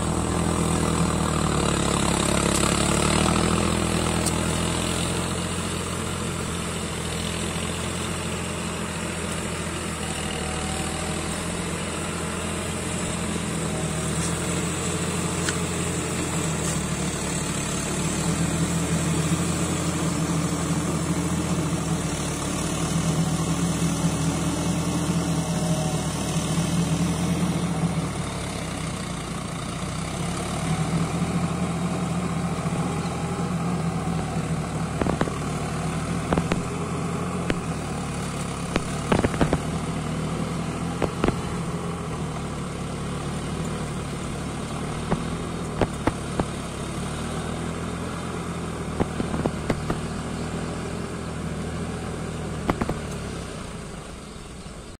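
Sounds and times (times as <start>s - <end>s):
tractor diesel engine under load: 0.0s - 55.0s
sharp knocks and clatter: 38.4s - 39.7s.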